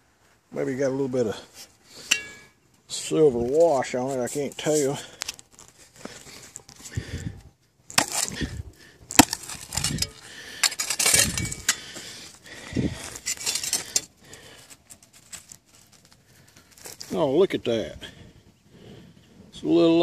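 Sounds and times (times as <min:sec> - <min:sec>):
digging tool striking clay: 0:07.9 - 0:11.8.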